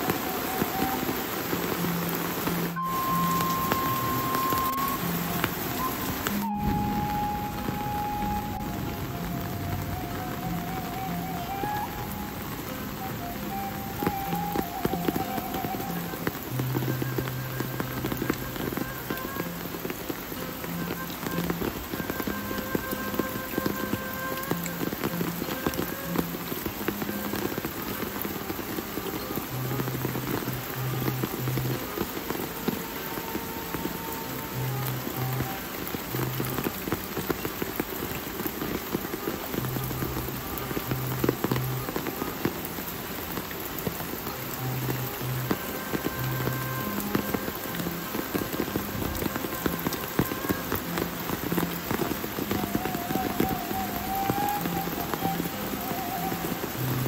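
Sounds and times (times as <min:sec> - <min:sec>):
rain pattering: 0:00.0 - 0:57.0
faint wavering high tone: 0:01.8 - 0:19.6.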